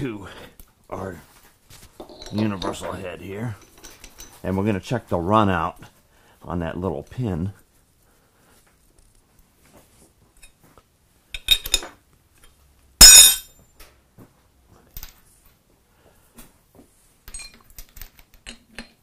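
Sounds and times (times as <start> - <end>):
metal chuck clanking: 13.0 - 13.4
hand tool clinking on metal: 13.0 - 13.5.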